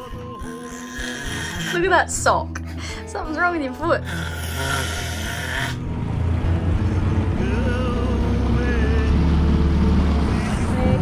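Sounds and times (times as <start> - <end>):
outboard motor droning: 4.2 - 11.0.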